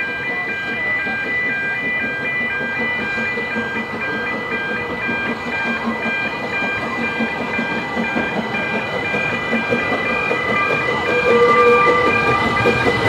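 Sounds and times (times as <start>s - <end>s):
steam locomotives moving slowly: 0.0s - 13.0s
level crossing alarm two tones: 9.9s - 13.0s.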